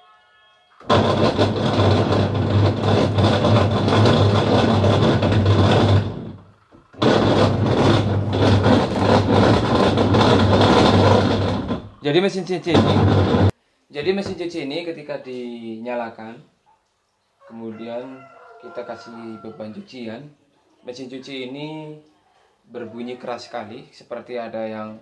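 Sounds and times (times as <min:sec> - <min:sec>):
washing machine running roughly: 0:00.8 - 0:12.0, 0:12.7 - 0:13.5.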